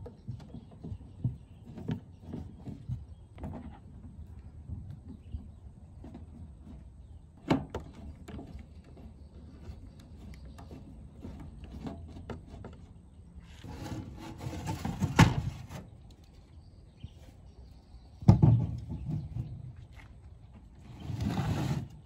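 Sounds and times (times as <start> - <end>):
metal cover scraping: 13.4 - 15.9.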